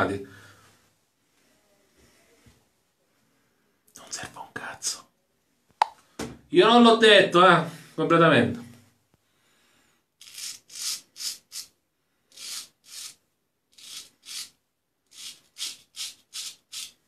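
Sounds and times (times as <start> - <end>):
razor scraping stubble: 10.2 - 11.7, 12.3 - 17.0.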